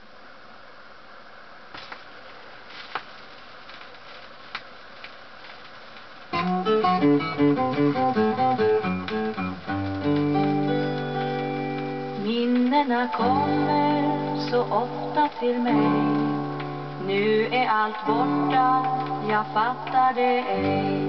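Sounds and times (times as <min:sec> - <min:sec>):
record stylus hiss and crackles: 0:00.0 - 0:21.0
song with plucked notes and chords: 0:06.4 - 0:12.2.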